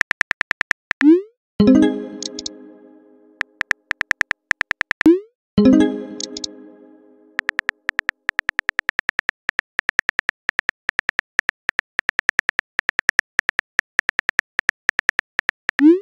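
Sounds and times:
phone keyboard typing clicks: 2.0 - 2.6, 6.2 - 6.5, 7.4 - 15.8.

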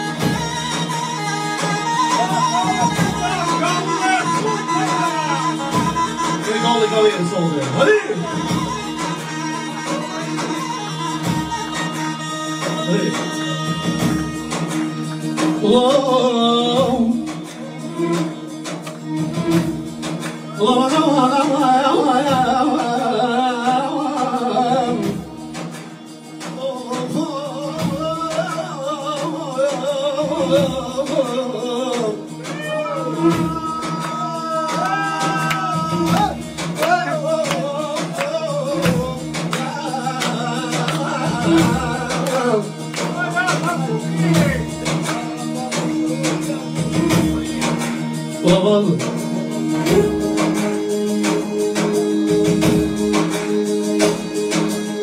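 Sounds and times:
man singing into microphone: 0.0 - 18.2, 20.5 - 25.5, 26.5 - 47.6, 48.3 - 51.3
instrumental backing: 0.0 - 55.0.

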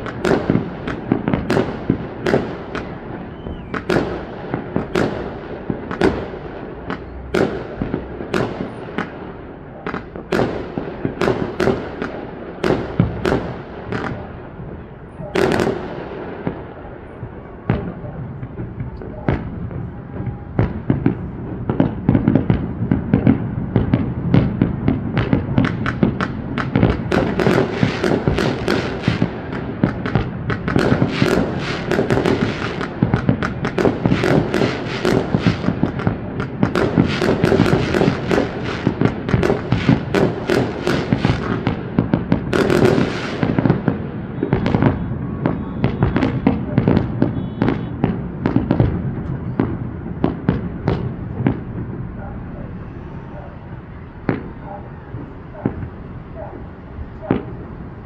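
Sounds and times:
fireworks banging: 0.0 - 58.0.

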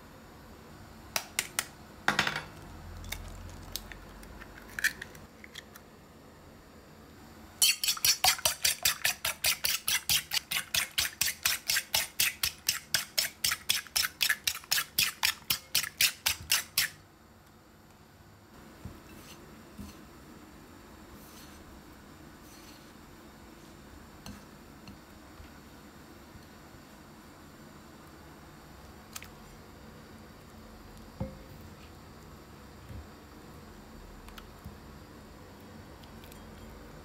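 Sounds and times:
fork beating eggs in bowl: 7.6 - 17.0.

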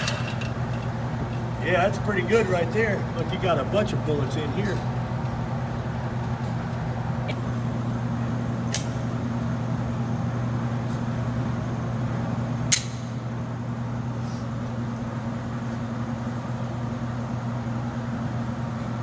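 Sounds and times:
ventilation hum: 0.0 - 19.0
pistol clicks: 12.7 - 13.1.

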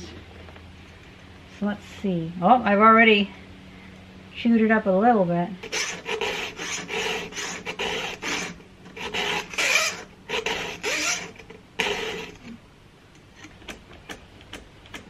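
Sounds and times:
short rasping scrapes: 5.6 - 12.6.

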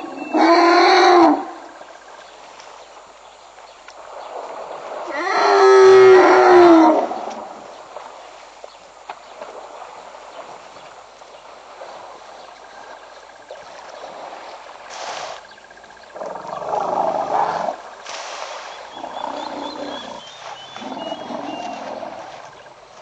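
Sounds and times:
faint bird chirps: 18.5 - 22.7.

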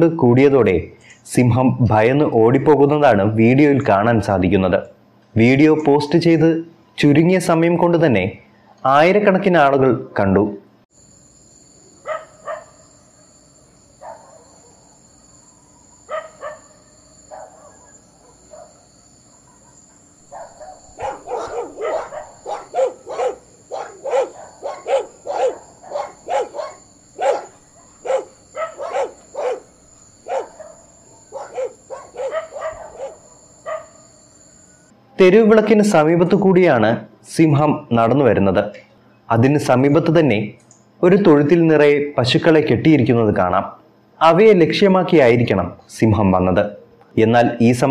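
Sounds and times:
dogs barking: 12.0 - 12.8, 14.0 - 14.9, 16.1 - 34.0.

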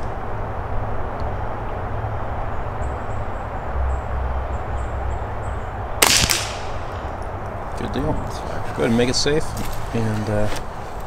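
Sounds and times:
rifle shot: 6.0 - 7.1.

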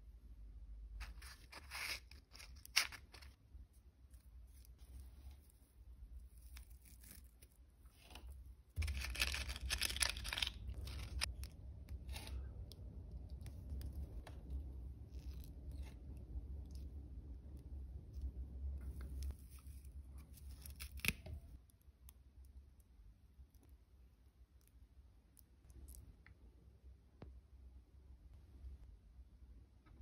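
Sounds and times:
matches rustling in matchbox: 1.0 - 12.6
wire scratching: 6.2 - 12.7.

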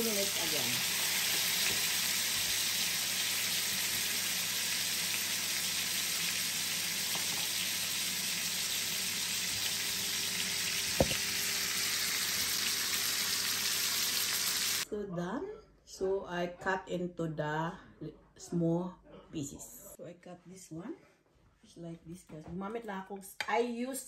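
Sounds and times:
meat sizzling in hot oil: 0.0 - 14.8.

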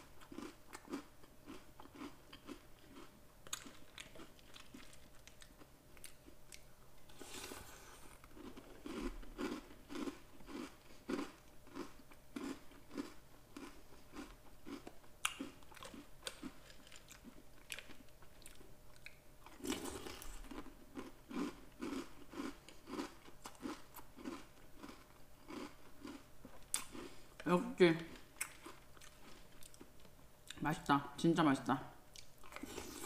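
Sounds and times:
person chewing crunchy cereal: 0.1 - 27.4, 28.1 - 30.1, 32.1 - 33.0.

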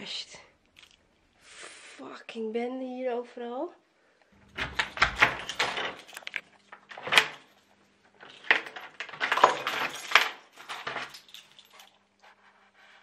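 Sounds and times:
small hard objects clinking: 8.2 - 11.9.

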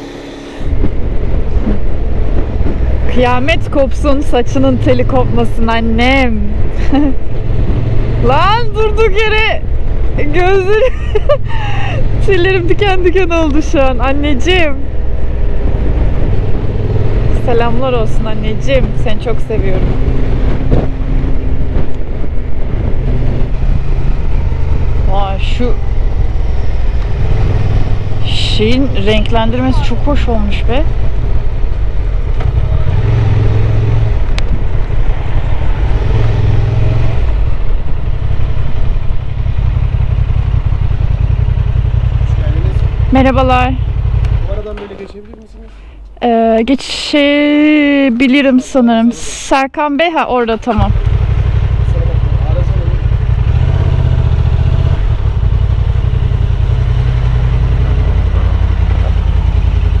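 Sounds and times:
motorcycle engine running: 0.0 - 45.4, 50.0 - 60.0
motorcycle engine idling: 37.3 - 46.1, 50.7 - 60.0.

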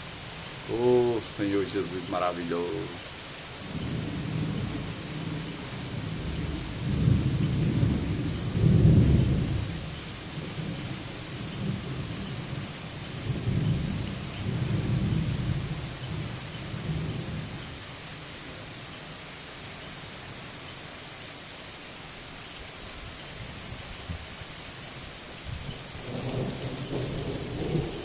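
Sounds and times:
heavy rain on paving: 0.0 - 28.0
thunder rumbling: 3.6 - 17.6, 25.6 - 28.0.

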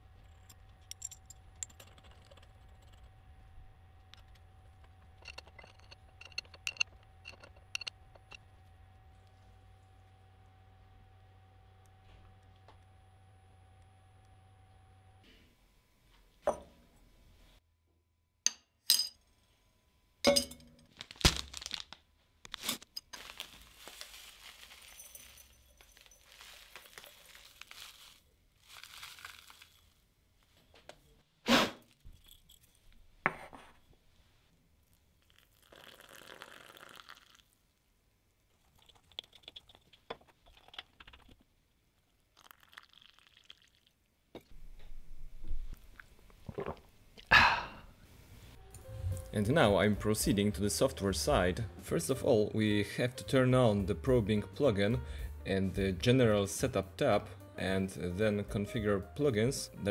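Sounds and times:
metal straw clinking on cup: 5.1 - 8.5
dry rustling and crunching: 20.9 - 30.0.

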